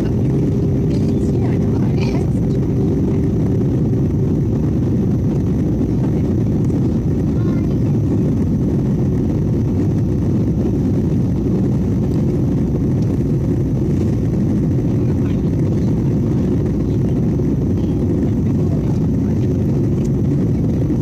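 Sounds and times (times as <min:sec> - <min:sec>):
jet engines rumbling in cabin: 0:00.0 - 0:21.0
rushing airflow: 0:00.0 - 0:21.0.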